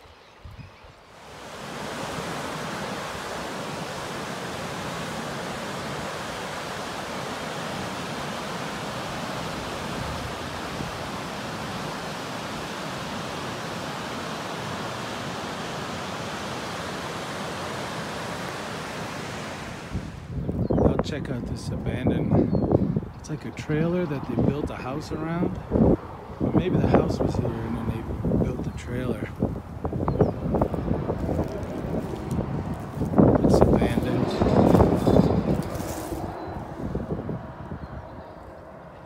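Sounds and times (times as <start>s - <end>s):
river rushing over rocks: 1.1s - 20.3s.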